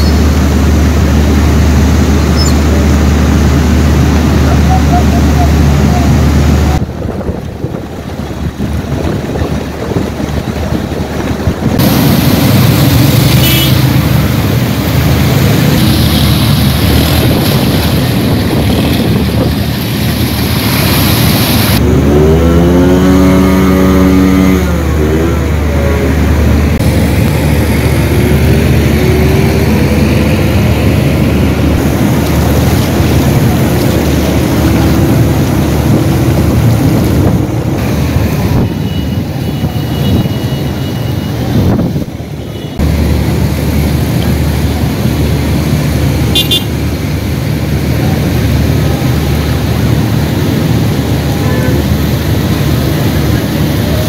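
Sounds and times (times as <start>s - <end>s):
engine passing close: 0.0s - 54.0s
vehicles driving through water: 0.0s - 54.0s
steady low drone: 21.7s - 38.7s.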